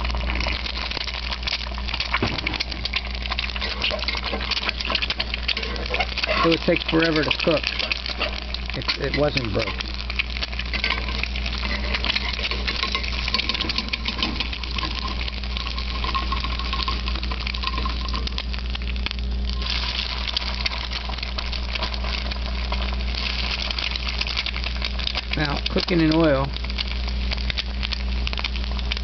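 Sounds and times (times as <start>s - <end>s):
egg sizzling in skillet: 0.0s - 29.0s
low steady hum: 0.0s - 29.0s.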